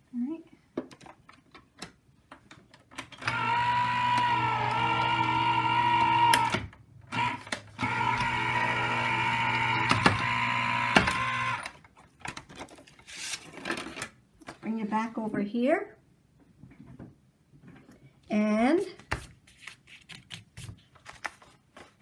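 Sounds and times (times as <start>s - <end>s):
die-cutting machine motor hum: 3.2s - 6.6s, 7.2s - 11.7s.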